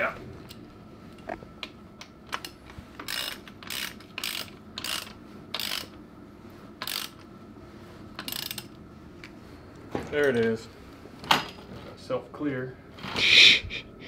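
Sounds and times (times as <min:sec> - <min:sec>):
ratchet wrench clicking: 0:02.4 - 0:05.9, 0:06.8 - 0:07.2, 0:08.2 - 0:08.7.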